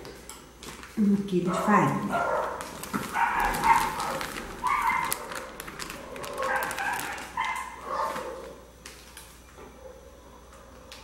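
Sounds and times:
flour pouring from bag: 2.7s - 7.4s
dog whining: 3.1s - 8.5s.

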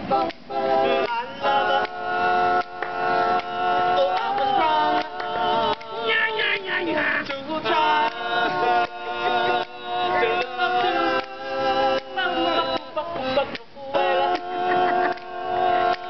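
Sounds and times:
vocal group singing in harmony: 0.0s - 16.0s.

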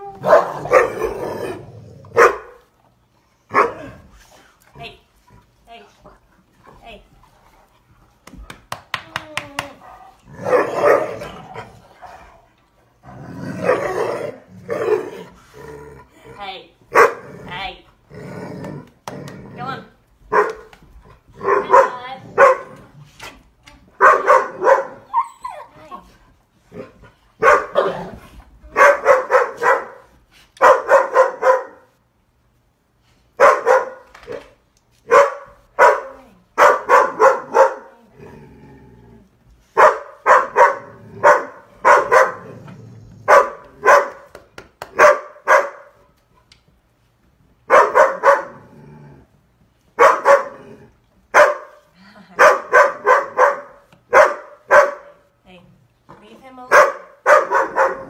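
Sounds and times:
dog barking loudly: 0.2s - 1.0s, 2.2s - 2.6s, 16.9s - 17.2s, 20.3s - 20.6s, 21.4s - 22.7s, 24.0s - 25.1s, 27.4s - 28.0s, 28.8s - 31.8s, 33.4s - 34.0s, 35.1s - 37.9s, 39.8s - 42.5s, 43.3s - 44.3s, 45.0s - 46.0s, 47.7s - 48.6s, 50.0s - 50.6s, 51.3s - 51.8s, 52.4s - 55.3s, 56.7s - 58.0s.

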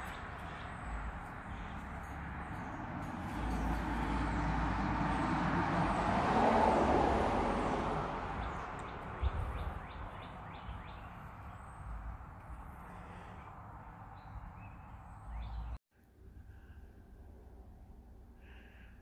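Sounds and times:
vehicle passing by: 0.0s - 15.8s
birds chirping faintly: 8.4s - 15.8s.

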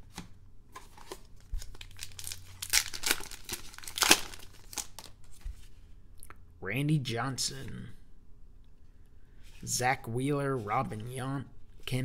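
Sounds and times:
wrapper tearing and crinkling: 1.0s - 5.2s.

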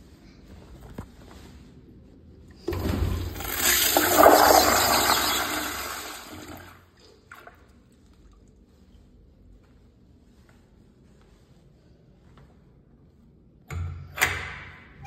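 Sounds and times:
toilet flushing: 2.6s - 7.7s.

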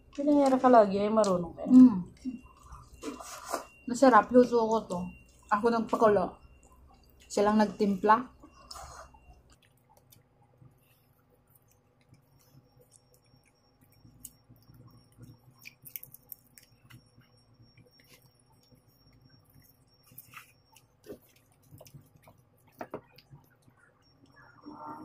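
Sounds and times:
chewing and finger-licking: 8.4s - 24.5s
shrimp shells crackling: 11.7s - 23.4s.

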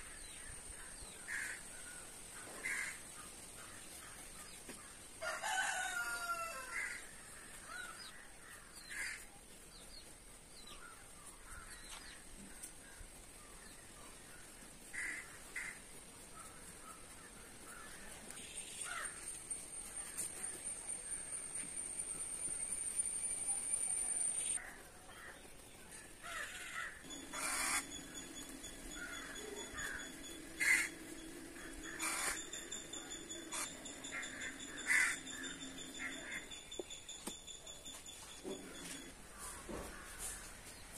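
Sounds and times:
crow cawing: 1.2s - 1.7s, 2.6s - 3.0s, 5.5s - 9.2s, 14.9s - 15.8s, 16.4s - 18.1s, 18.8s - 19.2s, 26.2s - 28.2s, 28.9s - 36.4s
rooster crowing: 5.2s - 7.0s
bird calls: 22.0s - 40.9s.

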